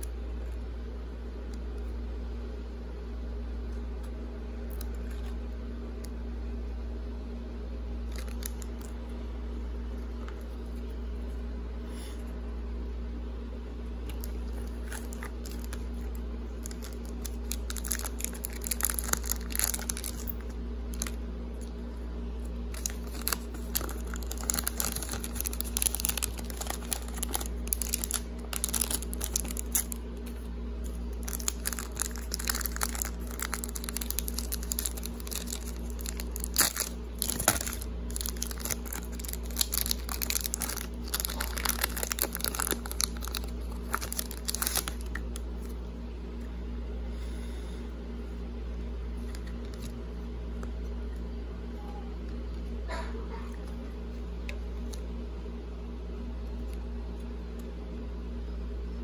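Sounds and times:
steady low hum: 0.0 - 59.0
foil pack crinkling: 8.1 - 9.0, 14.0 - 21.8, 22.4 - 45.8.

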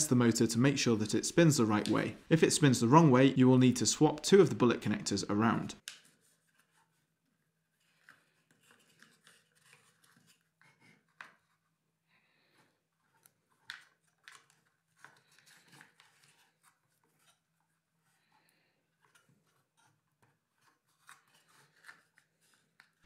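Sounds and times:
clicks and rustles of wires: 13.1 - 17.5.

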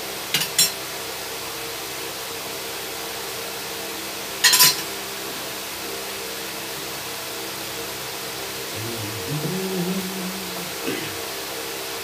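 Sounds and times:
steady background hum: 8.5 - 11.5.

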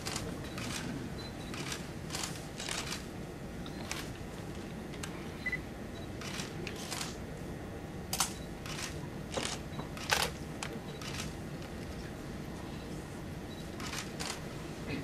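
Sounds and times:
camera shutters clicking: 1.5 - 3.0, 8.1 - 10.4, 13.8 - 14.4.

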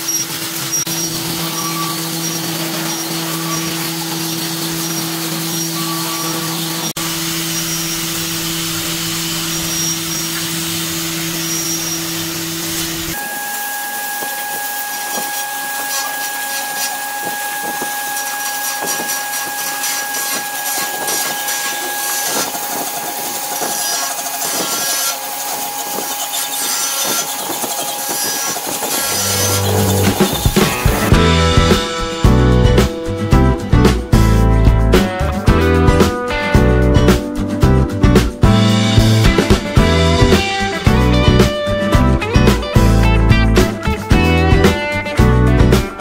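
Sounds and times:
sanding disc scratching wood: 0.0 - 33.3
angle grinder whine: 0.0 - 36.9, 38.4 - 46.0.

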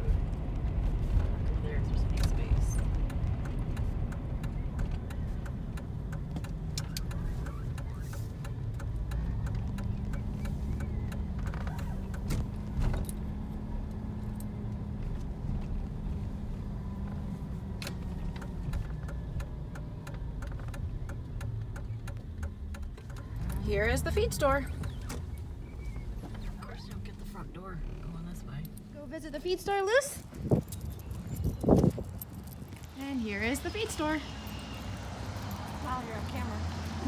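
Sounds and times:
car engine and road noise: 0.0 - 37.0
small rattles and clicks: 30.2 - 33.1.

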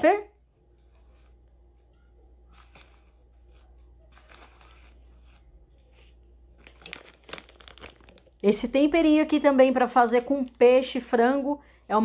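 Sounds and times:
plastic packet crinkling: 6.0 - 9.4.

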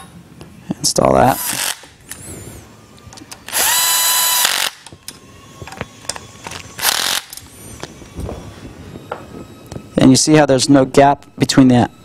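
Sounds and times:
powered screwdriver whirring: 1.3 - 2.3, 3.1 - 8.0
tool handling clicks: 4.5 - 8.0.

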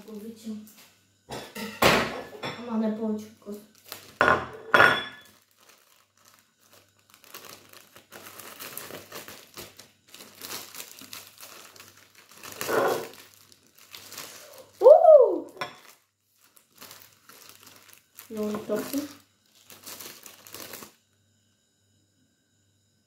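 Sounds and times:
plastic sachets crinkling and tearing: 3.4 - 4.2, 5.2 - 21.0
person humming: 14.5 - 15.6.

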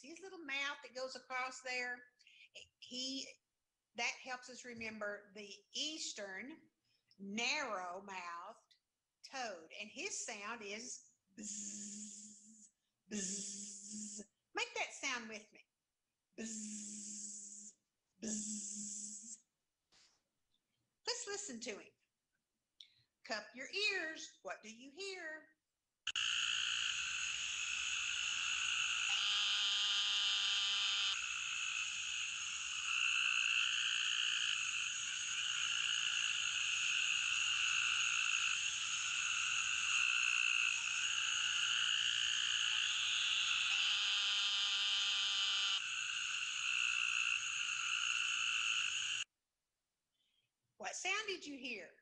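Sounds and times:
toad nasal buzz: 11.4 - 14.2, 16.4 - 19.4, 26.1 - 49.2.

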